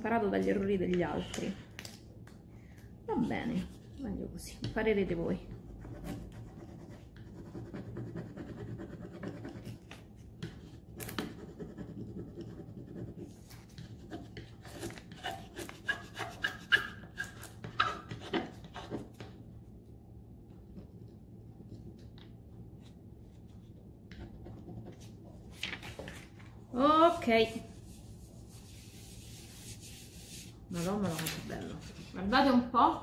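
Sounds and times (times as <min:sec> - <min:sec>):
sandpaper scratching painted wood: 0:27.4 - 0:31.0.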